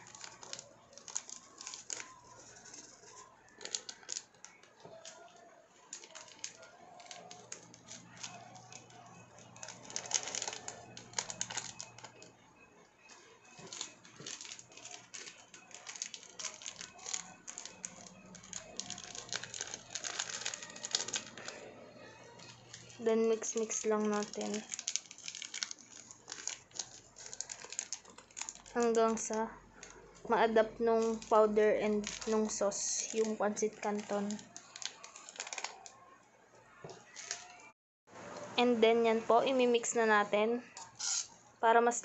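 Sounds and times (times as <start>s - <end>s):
seasoning sachets shaken and tapped: 0.0s - 12.2s, 13.6s - 21.6s, 22.4s - 30.0s, 31.0s - 35.9s.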